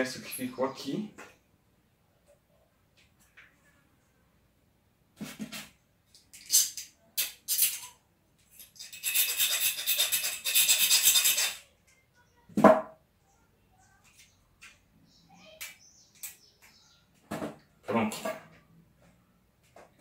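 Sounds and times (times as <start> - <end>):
fast rasping: 8.8 - 11.6.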